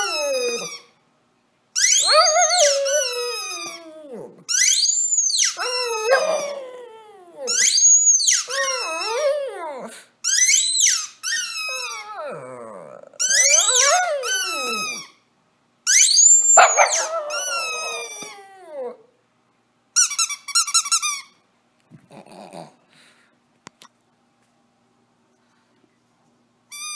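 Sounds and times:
dog howling: 0.0s - 0.8s, 1.9s - 4.5s, 5.5s - 7.9s, 8.5s - 10.0s, 11.7s - 15.0s, 16.4s - 19.1s
squeaky toy squeaking: 0.0s - 0.9s, 1.8s - 3.8s, 4.5s - 6.5s, 7.5s - 9.2s, 10.2s - 12.1s, 13.2s - 15.2s, 15.9s - 18.3s, 20.0s - 21.4s.

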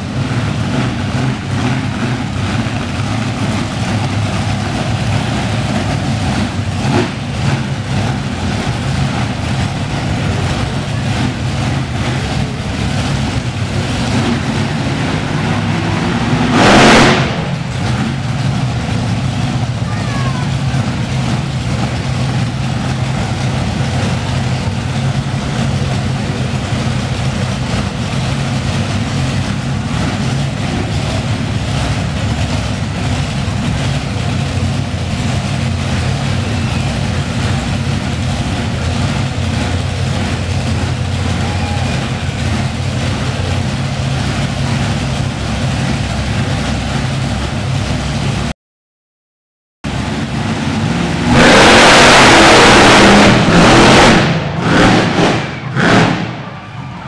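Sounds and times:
monster truck engine running: 0.0s - 48.5s, 49.8s - 57.0s.

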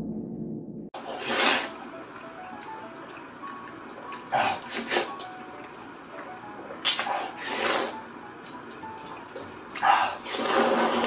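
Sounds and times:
wet slurping of noodles: 1.0s - 1.8s, 4.2s - 5.2s, 6.9s - 8.0s, 9.8s - 11.0s.

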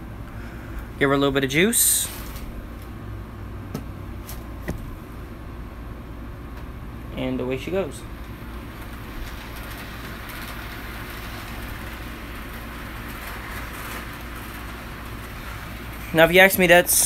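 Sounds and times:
model train motor whirring: 8.7s - 16.4s.

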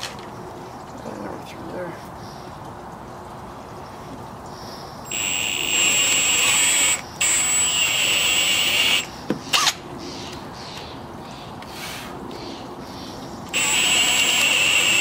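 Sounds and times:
power drill boring into timber: 5.1s - 9.1s, 13.5s - 15.0s.

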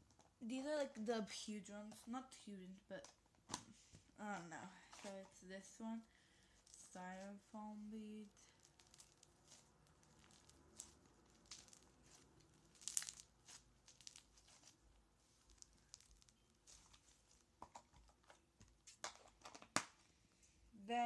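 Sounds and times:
slime crackling and popping: 8.0s - 20.1s.

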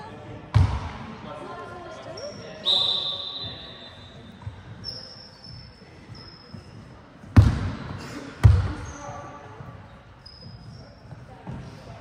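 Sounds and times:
basketball bouncing on court floor: 0.5s - 0.9s, 7.2s - 8.9s.

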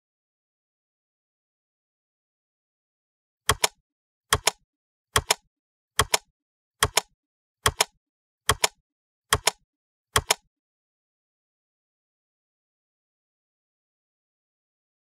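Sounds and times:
typewriter key strikes: 3.5s - 4.6s, 5.2s - 5.4s, 6.0s - 7.1s, 7.7s - 7.9s, 8.5s - 9.6s, 10.2s - 10.4s.

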